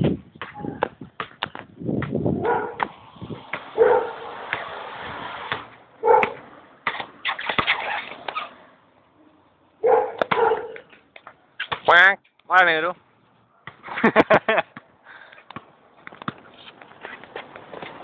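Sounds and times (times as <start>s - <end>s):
basketball dribbling on court: 10.1s - 10.9s.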